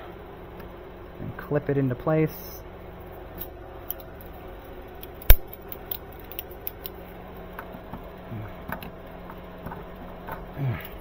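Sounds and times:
metal parts clicking and tapping: 5.0s - 7.0s.

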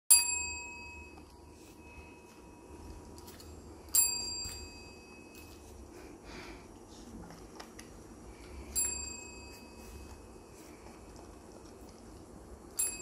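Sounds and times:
desk bell ding: 0.1s - 5.5s, 12.8s - 13.0s.

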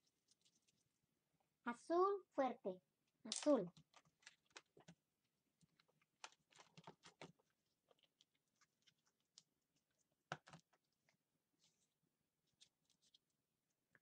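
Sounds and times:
plastic tubs and lids handled: 5.6s - 9.4s, 10.2s - 10.9s.

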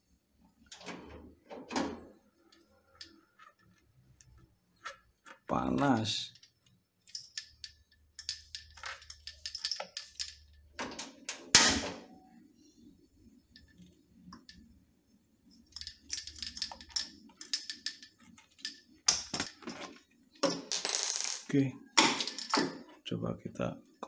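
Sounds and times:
handling clicks and rattles: 2.4s - 11.9s, 15.6s - 20.6s.

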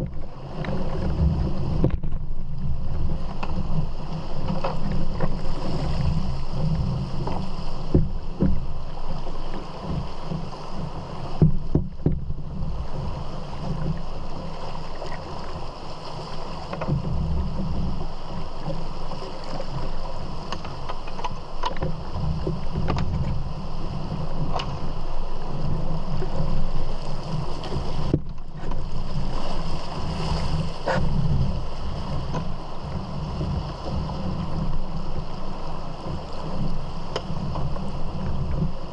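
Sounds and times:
wind buffeting microphone: 0.0s - 38.9s
rushing river rapids: 12.8s - 17.0s, 17.9s - 38.9s.

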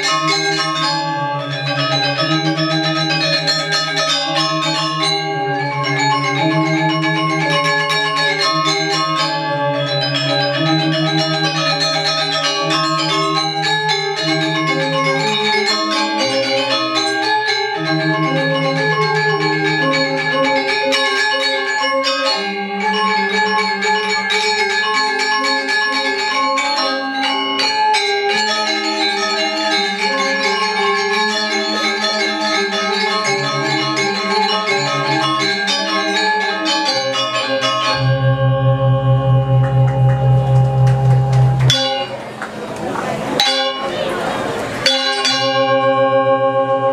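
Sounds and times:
gamelan metallophones ringing: 0.0s - 46.9s.

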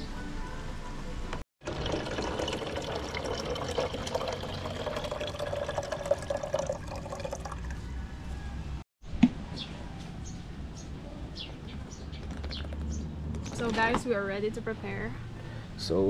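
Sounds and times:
water pouring into a container: 1.6s - 7.8s.

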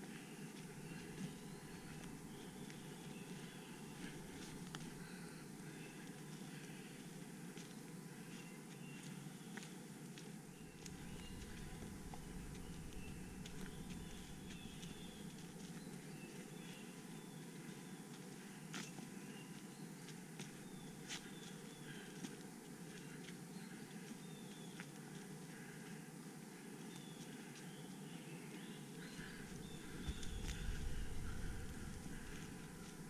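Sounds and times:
faint birdsong: 0.0s - 33.0s
steady low hiss: 0.0s - 33.0s.

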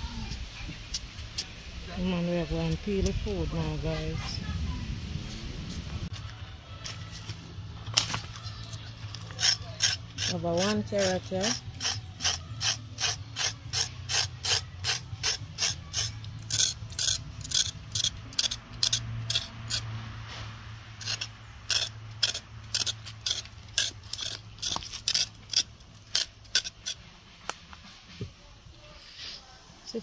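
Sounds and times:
knife scraping carrot skin: 7.9s - 27.7s.

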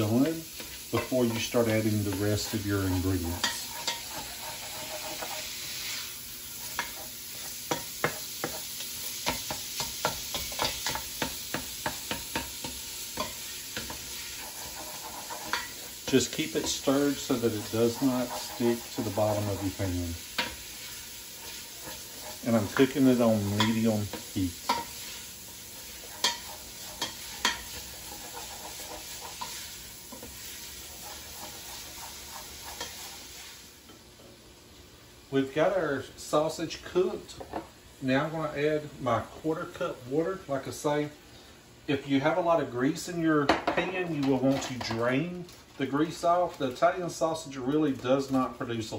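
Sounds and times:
spatula scraping a pot: 0.0s - 33.5s
sausage sizzling in a pot: 0.0s - 48.9s.

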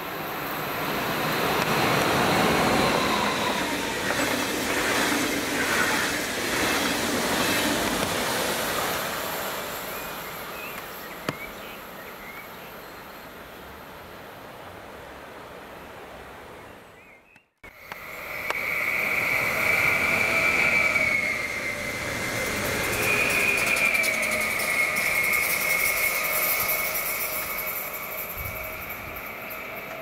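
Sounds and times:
electric train passing: 0.0s - 11.2s, 17.7s - 30.0s.

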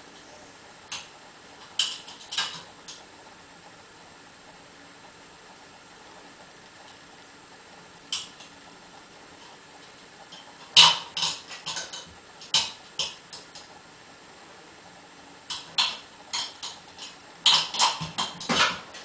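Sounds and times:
dog claws clattering on metal ladder: 1.6s - 3.0s, 10.3s - 13.5s, 15.5s - 18.8s.

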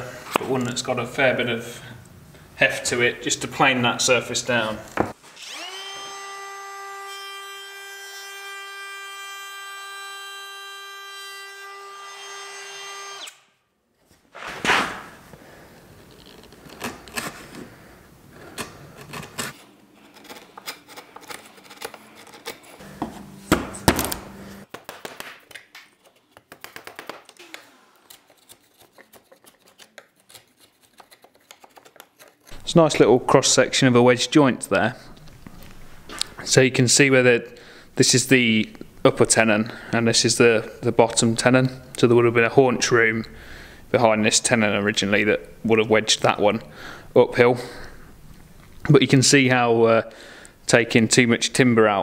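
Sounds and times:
router high whine: 5.4s - 10.9s, 27.4s - 28.3s
chisel paring and scraping wood: 18.5s - 24.2s, 28.1s - 32.6s.

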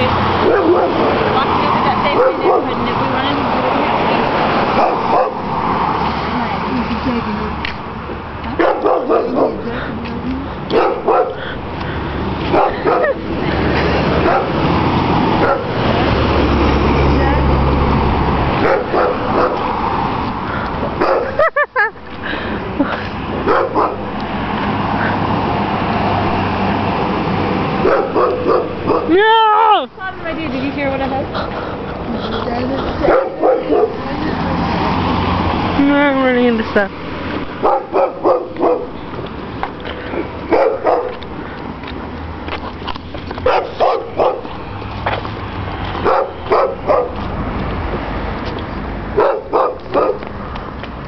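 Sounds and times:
girl barking like a dog: 0.4s - 1.2s, 2.1s - 2.8s, 8.6s - 9.7s, 12.5s - 13.2s
car driving past: 30.2s - 38.9s.

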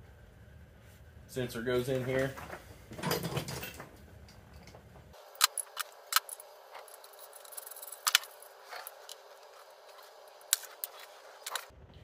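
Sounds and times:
sharp clicks of small parts: 5.2s - 9.3s.

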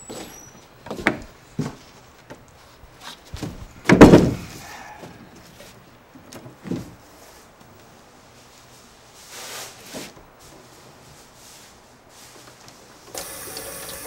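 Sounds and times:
light knocks and steps: 0.0s - 8.9s
heavy thump: 3.4s - 4.7s.

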